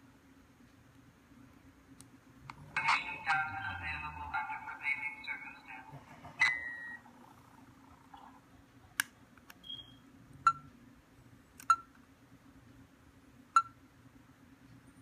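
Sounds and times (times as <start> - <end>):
brief electronic tone: 9.6 - 10.6.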